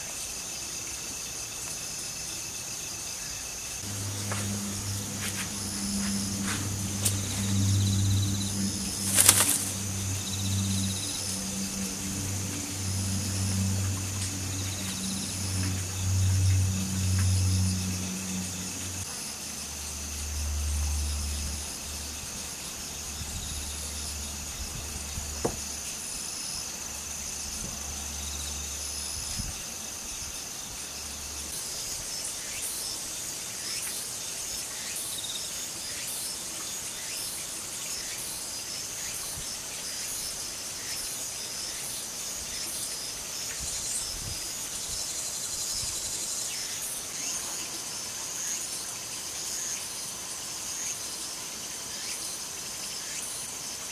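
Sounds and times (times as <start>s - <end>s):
insects chirring: 0.0s - 53.9s
low steady hum: 3.8s - 31.5s.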